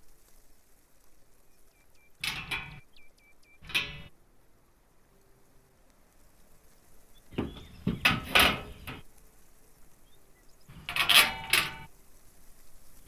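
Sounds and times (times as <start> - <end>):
steel tubing clanking and rattling: 2.2 - 2.8, 3.6 - 4.1, 7.3 - 9.0, 10.7 - 11.9.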